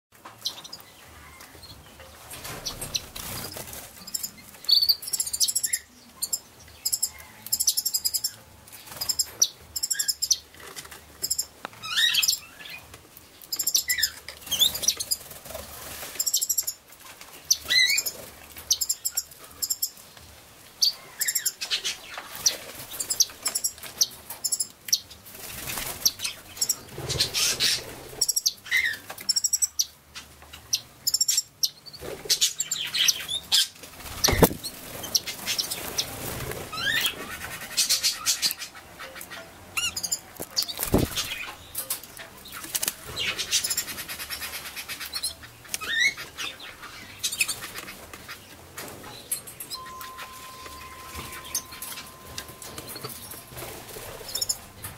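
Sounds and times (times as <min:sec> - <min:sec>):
parrots chirping: 0:02.6 - 0:08.4, 0:09.0 - 0:10.5, 0:11.2 - 0:12.8, 0:17.5 - 0:20.0, 0:20.8 - 0:24.7, 0:30.5 - 0:48.5, 0:49.2 - 0:54.9
wing flutters: 0:40.6 - 0:41.6.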